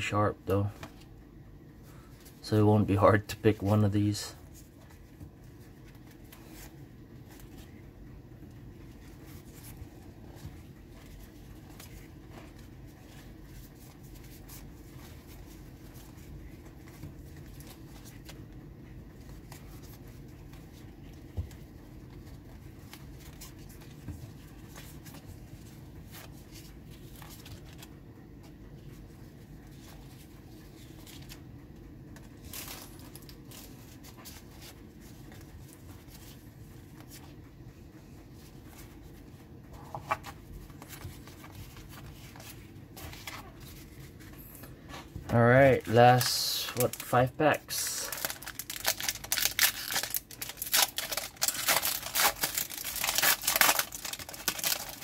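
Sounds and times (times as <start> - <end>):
steady low hum: 0.0 - 55.0
trading cards flicking and rubbing: 3.4 - 31.5, 32.1 - 55.0.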